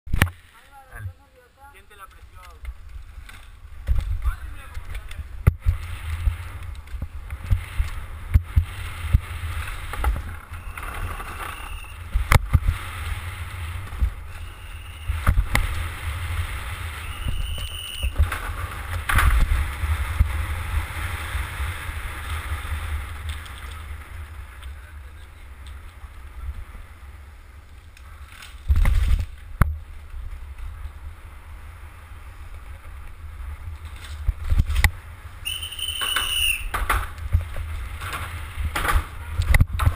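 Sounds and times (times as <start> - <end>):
tyres rumbling on asphalt: 0.1 - 39.9
bike knocks and rattles: 2.6 - 14.4, 17.2 - 20.6, 28.3 - 29.9, 35.7 - 39.9
short high squeals: 10.5 - 12.1, 14.3 - 15.2, 16.9 - 18.2, 35.4 - 36.7.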